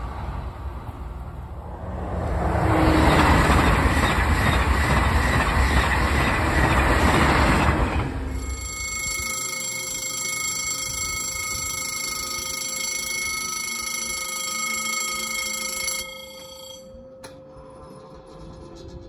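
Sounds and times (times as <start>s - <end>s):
level-crossing warning bell: 8.2s - 18.2s.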